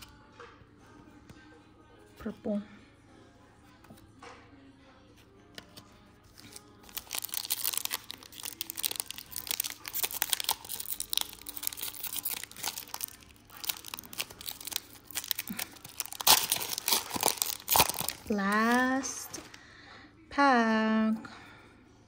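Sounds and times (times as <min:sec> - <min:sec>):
foil wrapper crinkling: 0:06.3 - 0:19.6
foil ripping: 0:06.4 - 0:19.4.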